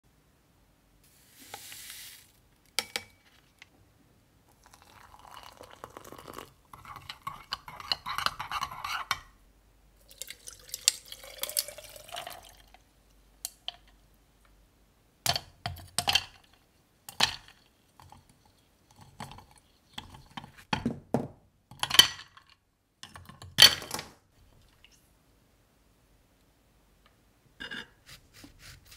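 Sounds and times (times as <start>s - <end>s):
coffee pouring over ice: 4.5s - 7.2s, 10.0s - 12.8s
liquid dripping: 10.0s - 12.8s.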